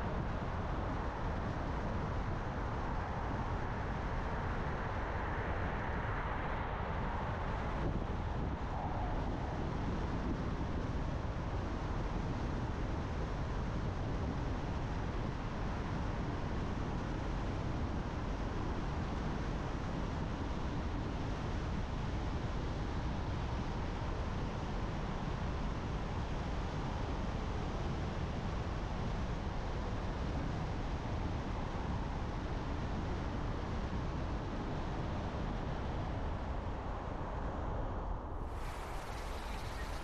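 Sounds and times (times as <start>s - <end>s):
car tyre and engine noise: 36.2s - 40.0s.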